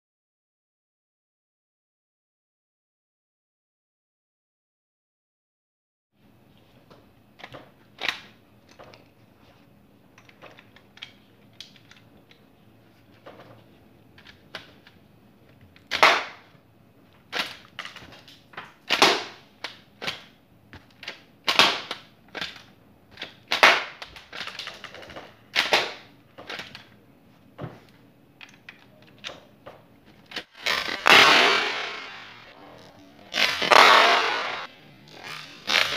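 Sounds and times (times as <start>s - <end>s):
toy pistol plastic snaps: 15.8s - 16.4s, 20.9s - 24.9s
mechanism clicks and rattles: 19.6s - 27.0s.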